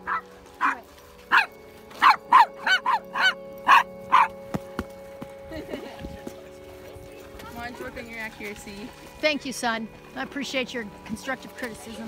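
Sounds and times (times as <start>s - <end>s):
dog barking: 0.0s - 4.4s.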